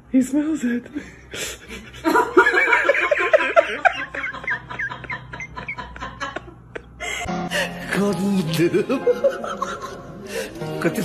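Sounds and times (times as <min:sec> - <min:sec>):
person laughing: 0:01.6 - 0:07.3, 0:08.5 - 0:10.2.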